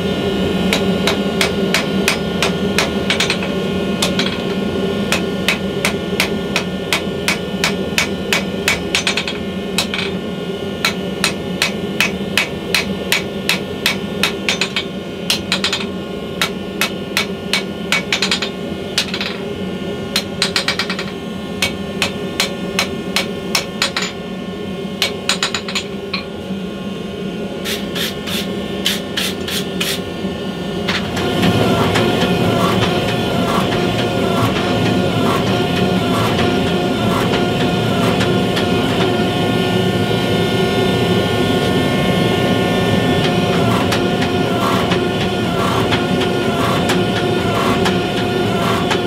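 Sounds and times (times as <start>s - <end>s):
steady hum: 0.0s - 49.0s
hammer ringing on anvil: 0.7s - 10.2s, 10.8s - 19.4s.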